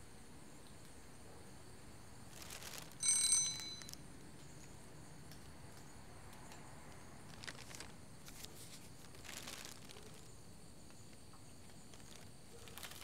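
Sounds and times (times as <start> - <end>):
paper rustling: 2.3 - 3.0, 7.2 - 10.3, 11.8 - 13.0.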